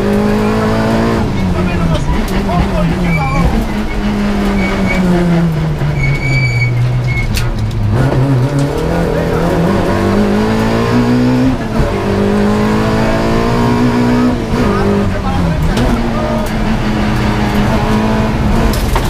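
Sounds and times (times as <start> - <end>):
rally car engine revving: 0.0 - 19.0
high squeals: 3.0 - 5.2, 5.8 - 7.4.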